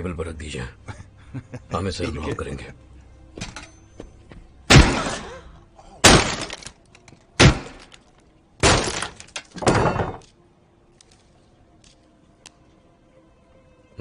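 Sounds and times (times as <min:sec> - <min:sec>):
glass breaking: 0:06.0 - 0:06.8, 0:07.4 - 0:08.0, 0:08.6 - 0:10.2.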